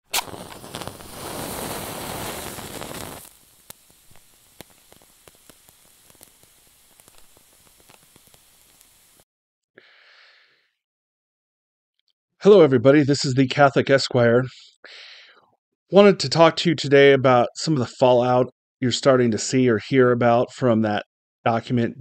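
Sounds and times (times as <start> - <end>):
lighter flame rushing: 0.1 - 9.2
wick burning with soft crackle: 0.1 - 9.2.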